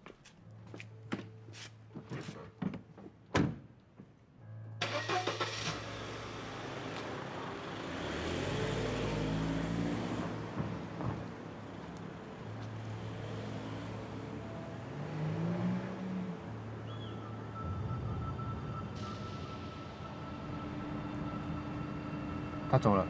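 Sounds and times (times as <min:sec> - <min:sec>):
car engine starting and accelerating: 0:04.8 - 0:16.8.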